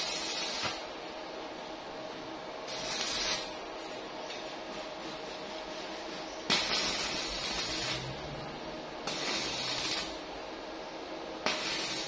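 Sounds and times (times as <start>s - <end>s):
welding arc sizzling and crackling: 0.0s - 1.2s, 2.6s - 4.1s, 6.4s - 10.6s, 11.3s - 12.0s.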